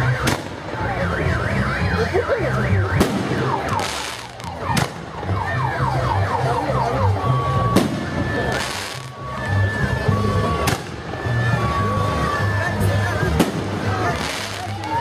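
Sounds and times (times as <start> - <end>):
car alarm: 0.0 - 15.0
firework bangs: 2.9 - 5.1, 7.7 - 9.1, 13.3 - 14.8.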